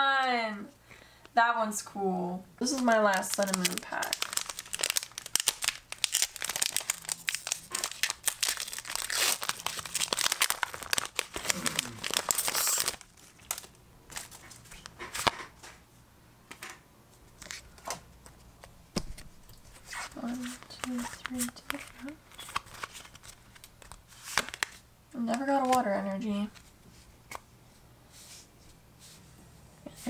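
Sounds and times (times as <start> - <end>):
foil wrapper crinkling and tearing: 2.6 - 15.4, 19.7 - 24.8.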